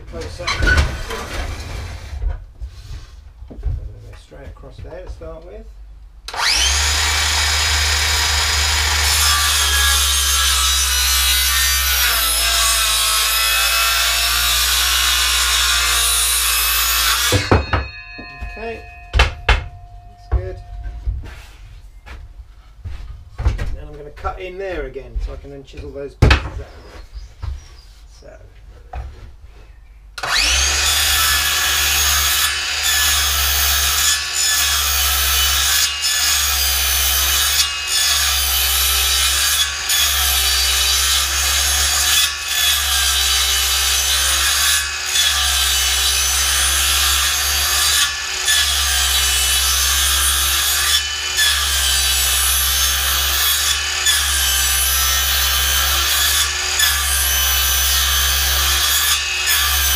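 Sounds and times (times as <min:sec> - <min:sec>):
circular saw cutting wood: 0:06.3 - 0:18.8, 0:30.2 - 0:59.9.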